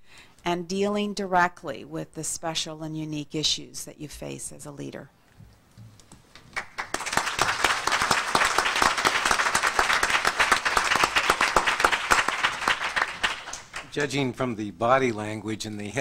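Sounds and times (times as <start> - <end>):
audience applauding: 6.3 - 14.4.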